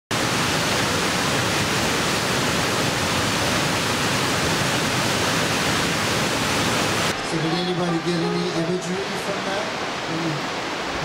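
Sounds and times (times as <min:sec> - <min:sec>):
river rapids rushing: 0:00.1 - 0:11.0.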